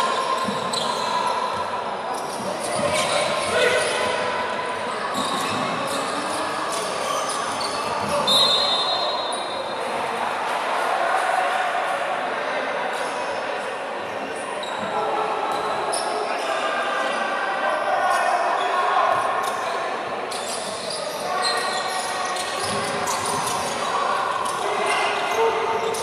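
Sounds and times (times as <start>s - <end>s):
sneakers squeaking: 0.0s - 4.4s, 5.1s - 9.8s, 14.6s - 16.6s, 19.1s - 26.0s.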